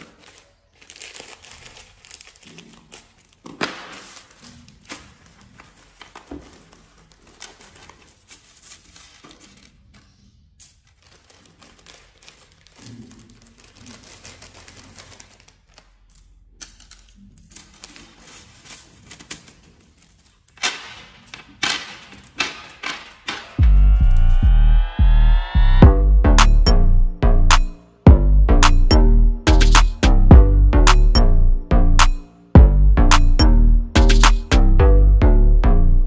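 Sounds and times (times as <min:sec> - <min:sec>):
plastic wrapper crinkling: 0:00.0 - 0:10.0, 0:10.8 - 0:20.5
bamboo skewers clattering on wood: 0:01.6 - 0:09.9, 0:17.8 - 0:23.6.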